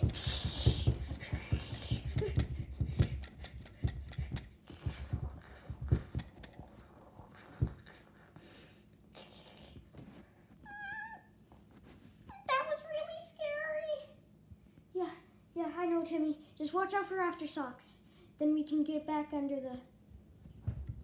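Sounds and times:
table and toys thumping and rattling: 0.0s - 8.0s.

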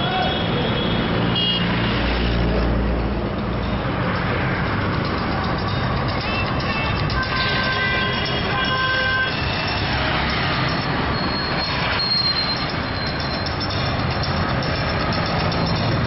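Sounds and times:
vehicle engines running: 0.0s - 16.0s.

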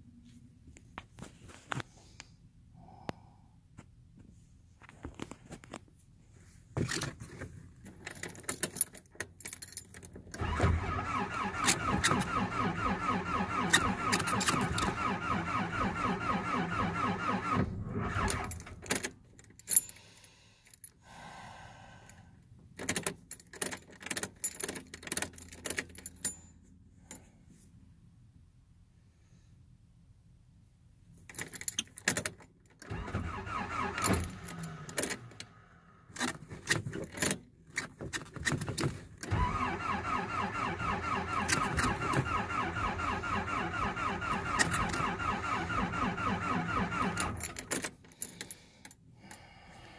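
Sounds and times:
keys jingling and clicking: 7.9s - 10.2s, 18.4s - 20.0s, 22.8s - 26.4s, 31.3s - 32.5s, 47.2s - 49.0s
engine starter cranking: 10.3s - 19.2s, 32.8s - 36.4s, 39.2s - 48.0s.

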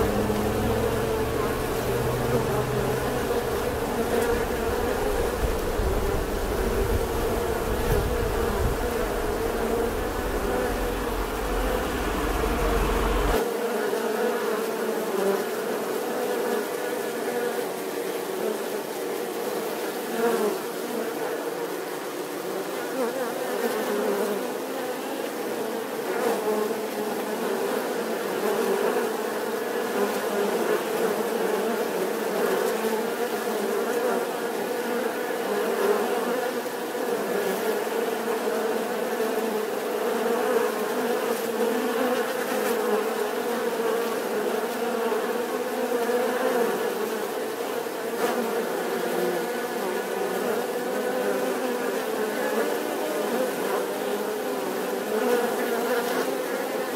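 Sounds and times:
bees buzzing: 0.0s - 13.4s.

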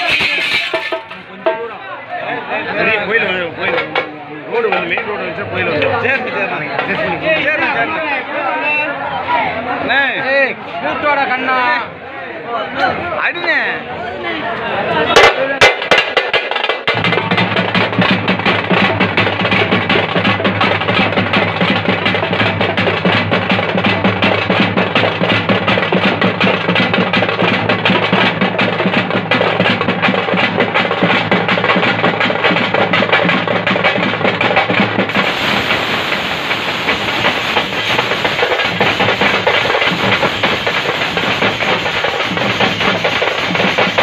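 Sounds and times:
frame drums beaten fast: 0.0s - 1.7s, 15.2s - 44.0s.

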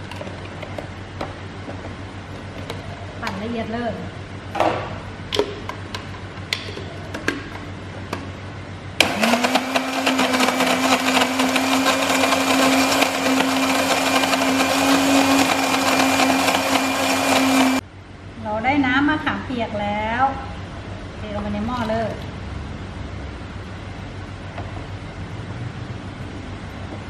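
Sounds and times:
blender motor humming: 9.0s - 17.8s.

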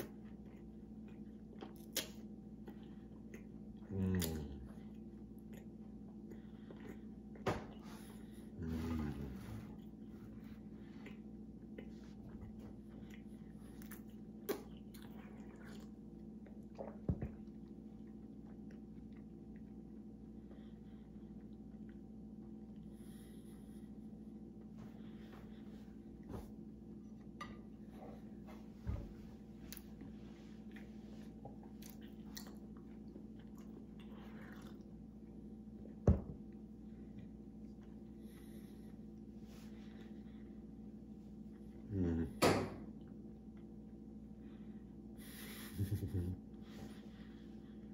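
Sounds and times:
person chewing: 0.0s - 7.4s, 9.8s - 22.9s, 29.7s - 36.0s
steady low hum: 0.0s - 47.9s.

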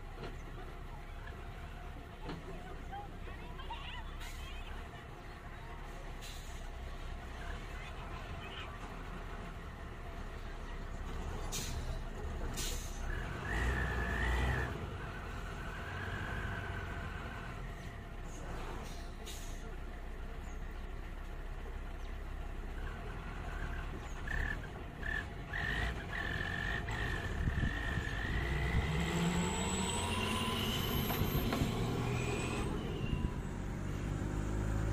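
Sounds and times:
vehicle engine humming: 0.0s - 34.9s
diesel engine idling: 14.8s - 29.7s.

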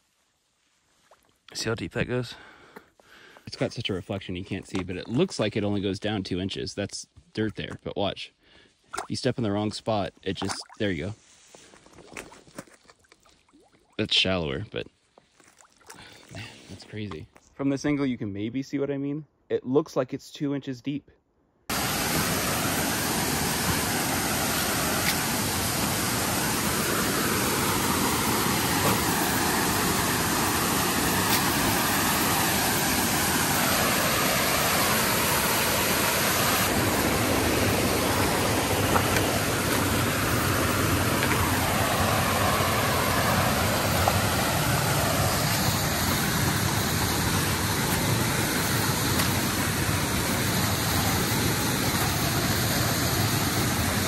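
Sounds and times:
stream rushing over rocks: 21.7s - 54.0s.

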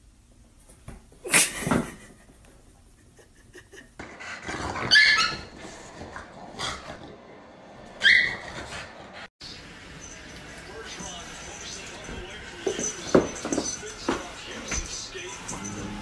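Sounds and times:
dogs growling: 4.0s - 9.3s, 15.4s - 16.0s.

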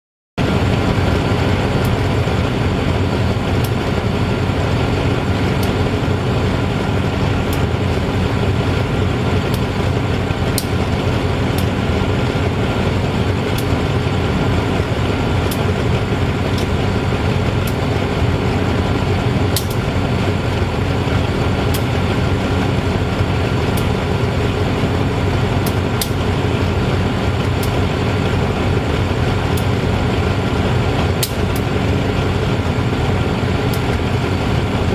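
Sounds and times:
diesel locomotive idling: 0.4s - 34.9s
light sharp ticks: 25.6s - 26.2s.

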